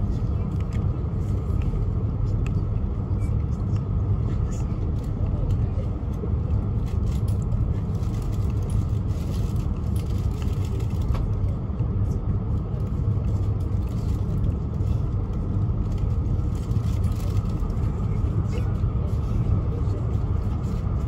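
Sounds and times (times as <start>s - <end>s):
train running low rumble: 0.0s - 21.0s.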